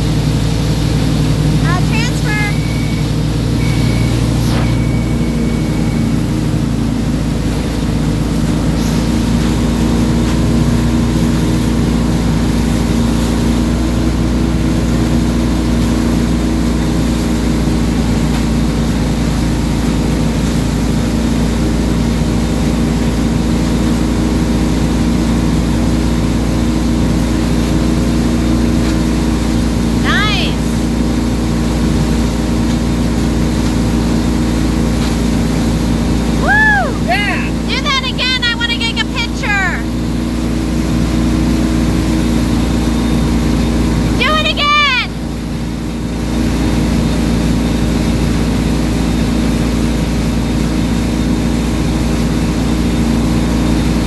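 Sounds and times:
wake water churning: 0.0s - 38.5s
boat engine humming: 0.0s - 54.0s.

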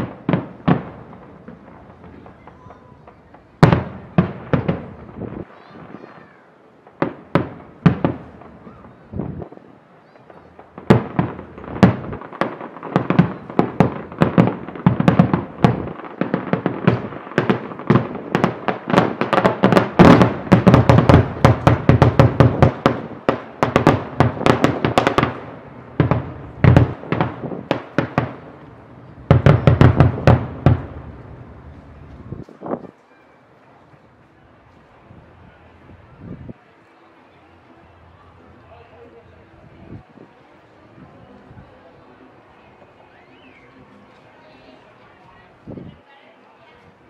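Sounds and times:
fireworks exploding: 0.0s - 33.1s.

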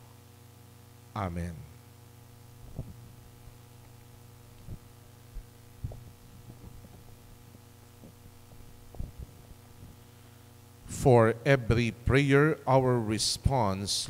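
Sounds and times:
low electrical hum: 0.0s - 14.0s
microphone handling thumps: 2.5s - 10.0s.

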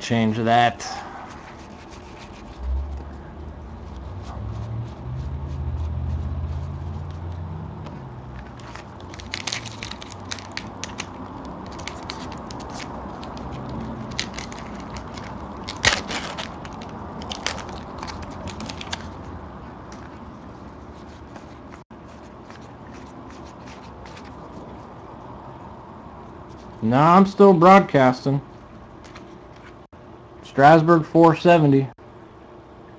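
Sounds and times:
low hum: 0.9s - 21.8s
wrapper tearing and crinkling: 8.4s - 19.2s
sharp crack: 14.1s - 19.0s.

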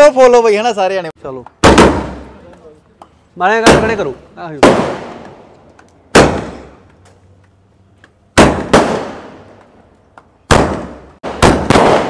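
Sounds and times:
firecrackers banging: 1.4s - 7.1s, 8.2s - 12.0s.

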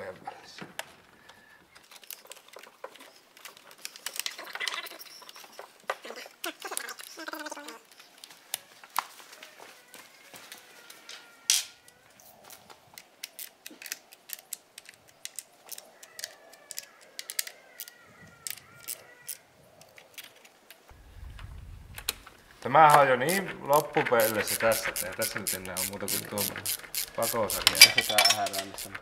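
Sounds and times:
hand tool clicking on plastic: 12.6s - 20.5s, 23.8s - 29.0s.

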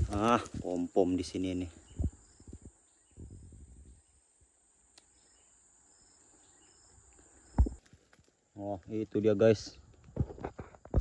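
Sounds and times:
insect high-pitched drone: 0.0s - 7.8s
insect chirps: 0.0s - 11.0s.

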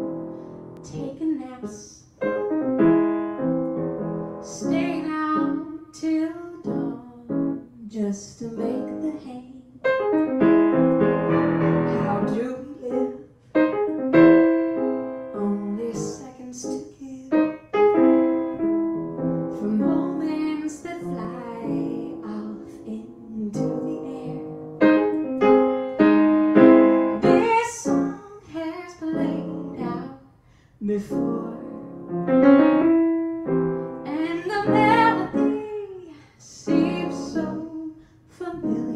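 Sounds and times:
piano chords: 0.0s - 1.6s, 2.2s - 7.8s, 8.4s - 30.2s, 30.8s - 38.9s
woman singing: 4.4s - 9.9s, 11.8s - 13.3s, 15.3s - 17.7s, 19.5s - 24.6s, 27.2s - 32.0s, 34.0s - 38.9s.

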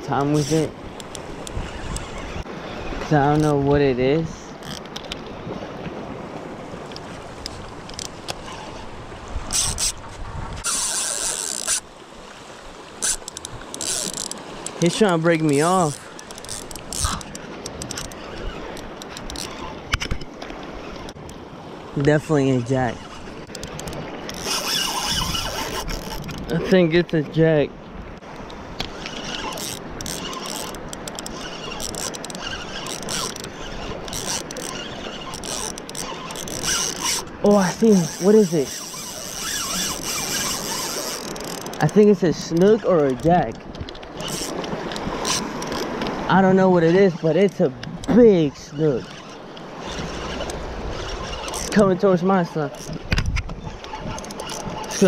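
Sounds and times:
water noise: 0.0s - 55.0s
wind: 0.0s - 55.0s
fishing reel drag buzzing: 0.2s - 3.6s, 4.5s - 4.9s, 6.9s - 20.0s, 22.6s - 26.6s, 28.7s - 43.3s, 44.1s - 46.2s, 48.0s - 51.9s, 52.7s - 53.0s, 53.6s - 55.0s.

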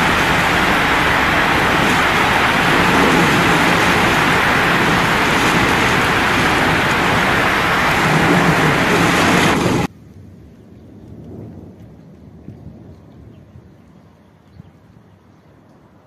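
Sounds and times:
heavy rain: 0.0s - 13.9s
gusting wind: 0.0s - 14.0s.

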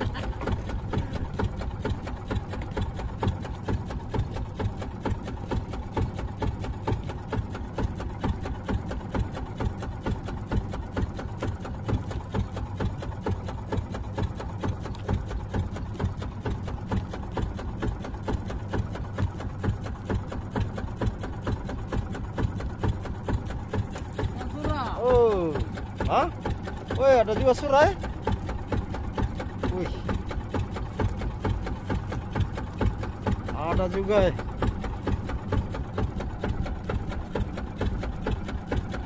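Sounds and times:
boat engine knocking: 0.0s - 39.0s.

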